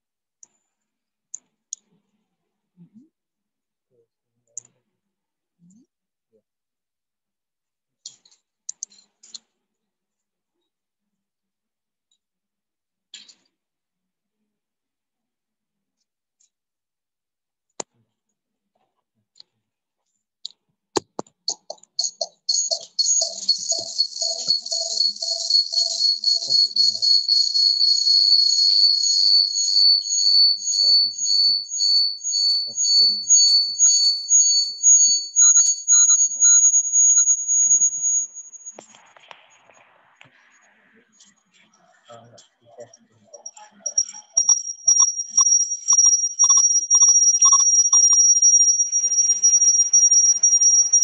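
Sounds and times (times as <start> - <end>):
short clicks and blips: 21.0 - 39.3, 43.4 - 51.0
high-pitched pulsing chirps: 21.5 - 39.0, 42.8 - 51.0
high-pitched electronic whine: 21.5 - 39.8, 43.4 - 51.0.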